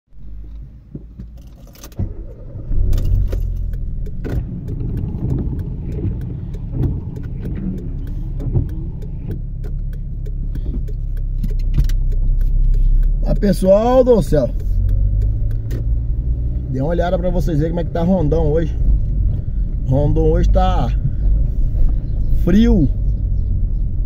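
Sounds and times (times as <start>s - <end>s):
car interior rumble: 0.1s - 24.0s
raindrops ticking on windshield: 3.1s - 16.0s.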